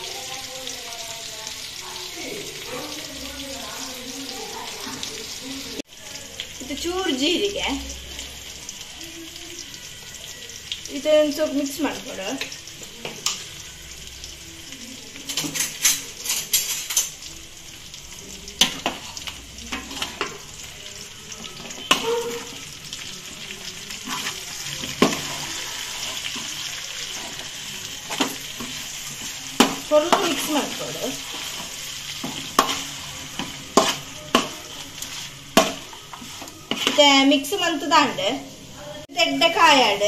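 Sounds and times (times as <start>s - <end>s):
chicken sizzling in a pan: 0.0s - 40.0s
metal spoon scraping a pan: 15.2s - 17.3s, 18.5s - 20.7s, 21.4s - 37.7s.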